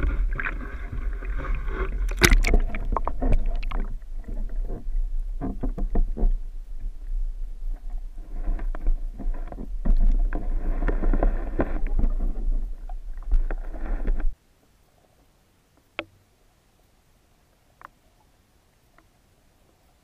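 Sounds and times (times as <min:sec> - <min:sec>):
low underwater rumble: 0:00.0 - 0:14.4.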